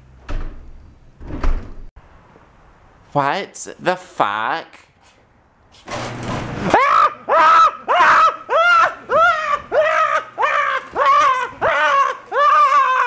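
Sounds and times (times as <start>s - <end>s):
man screaming in falsetto: 6.7s - 13.0s.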